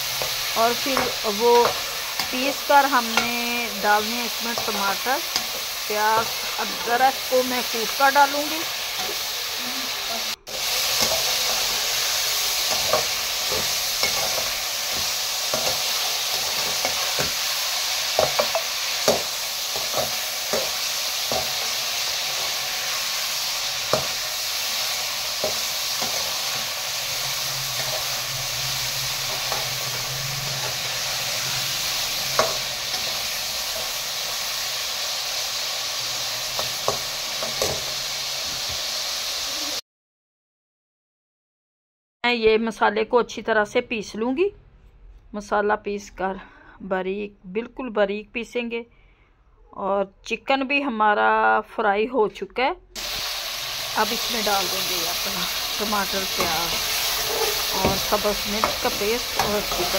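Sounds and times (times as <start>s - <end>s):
chicken sizzling in hot fat: 0.0s - 39.8s, 53.0s - 59.9s.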